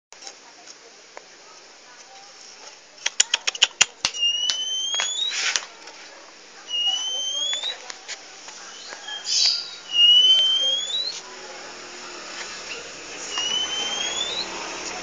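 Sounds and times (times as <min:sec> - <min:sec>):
sharp clicks: 0:03.0 - 0:05.7
bird rising whistled notes: 0:04.2 - 0:05.4, 0:06.7 - 0:07.8, 0:08.7 - 0:11.2, 0:12.7 - 0:14.7
bird harsh rasping calls: 0:06.6 - 0:07.9, 0:08.5 - 0:14.8.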